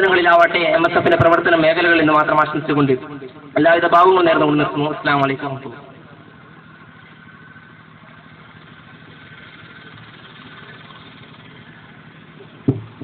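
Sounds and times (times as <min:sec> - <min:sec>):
low hum and hiss: 0:00.0 - 0:13.0
sharp thump: 0:12.6 - 0:13.0.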